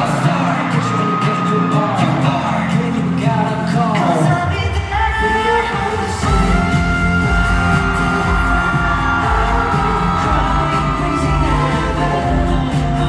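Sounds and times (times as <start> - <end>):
audience yelling: 0.0 - 3.2, 5.6 - 13.0
pop song through arena speakers: 0.0 - 13.0.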